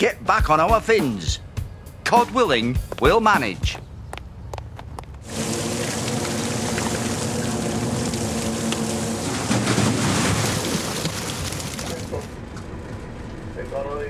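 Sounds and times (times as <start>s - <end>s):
sea water rushing: 5.2s - 12.1s
boat engine running: 5.2s - 13.6s.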